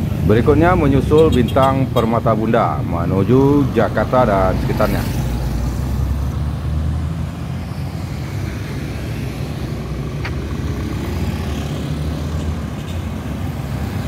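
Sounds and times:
diesel engine rumbling: 0.0 - 14.0
motorcycles passing: 0.0 - 14.0.

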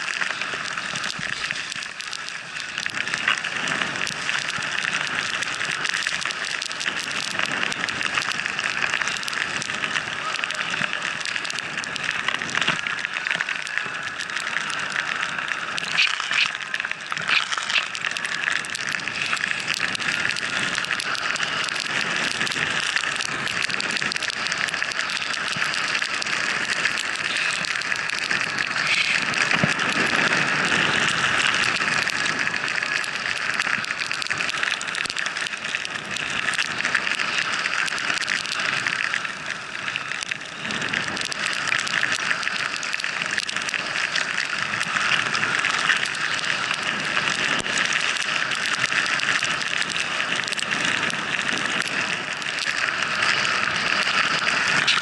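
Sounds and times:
skis hissing through snow: 15.6 - 18.4, 24.5 - 33.0.

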